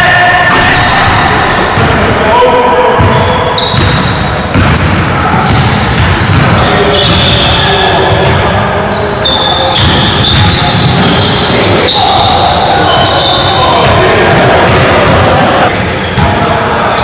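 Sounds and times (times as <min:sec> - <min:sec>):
basketball bouncing on hardwood floor: 0:03.8 - 0:06.6.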